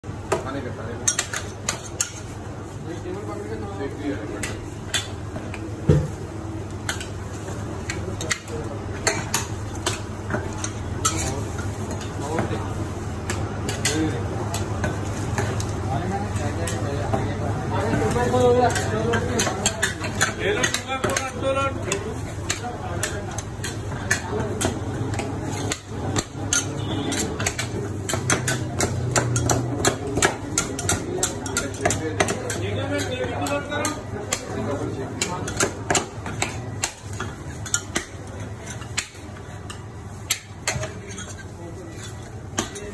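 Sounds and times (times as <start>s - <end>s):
metal spatulas clacking on stone: 1.0s - 2.3s, 17.9s - 42.9s.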